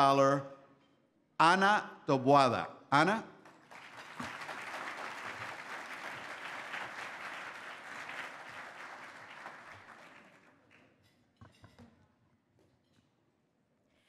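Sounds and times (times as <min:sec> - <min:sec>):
audience applauding: 0:03.4 - 0:10.8.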